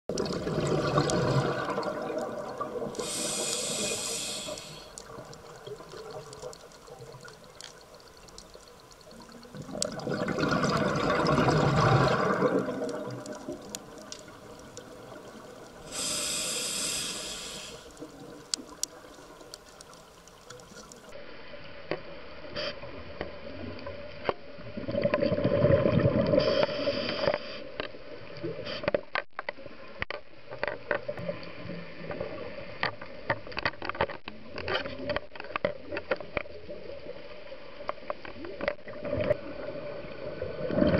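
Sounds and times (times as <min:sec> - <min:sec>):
exhaled bubbles rushing underwater: 0:00.1 - 0:04.4, 0:09.1 - 0:19.4, 0:24.7 - 0:26.4
regulator inhale hiss: 0:02.9 - 0:05.2, 0:15.8 - 0:18.2, 0:26.4 - 0:27.8.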